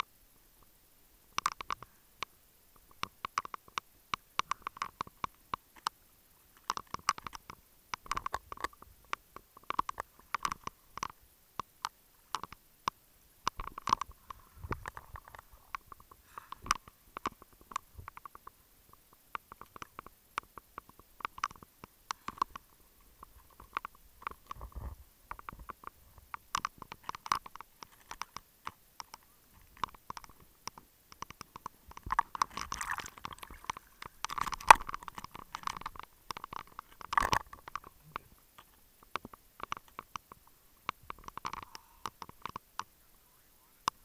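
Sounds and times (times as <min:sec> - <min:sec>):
underwater bubbles gurgling: 0:32.0 - 0:36.0.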